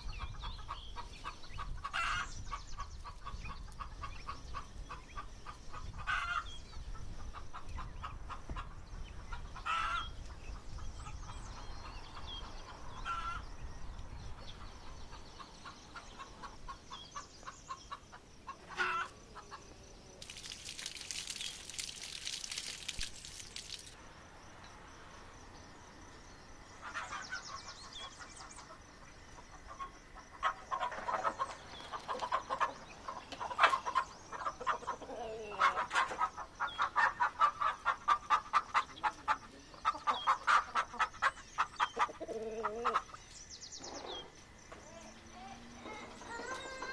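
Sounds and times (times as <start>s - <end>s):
chickens clucking: 0.1s - 13.4s, 14.5s - 19.6s, 26.8s - 43.2s.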